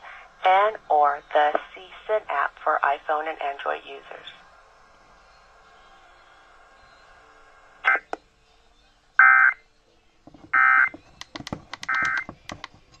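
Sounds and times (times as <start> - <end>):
sharp clicks of handled radio: 11.2 - 13.0.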